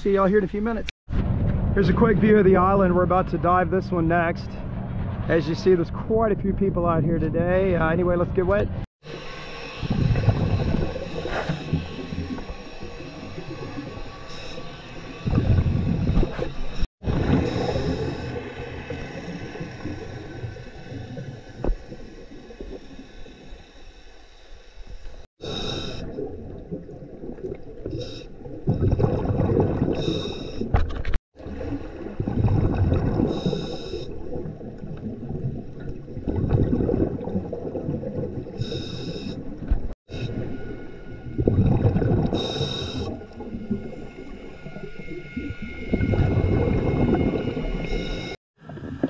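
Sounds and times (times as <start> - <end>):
gurgling exhaled bubbles: 9.8 - 23.5, 25.4 - 30.8, 31.4 - 40.6, 41.2 - 49.0
regulator hissing inhales: 38.6 - 39.4, 42.4 - 43.2.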